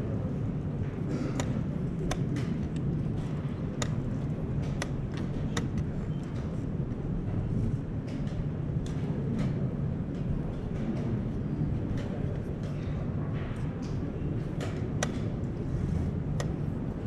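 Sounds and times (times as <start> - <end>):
low rumble of hall: 0.0 - 17.0
chess pieces clicking on board: 1.4 - 6.6.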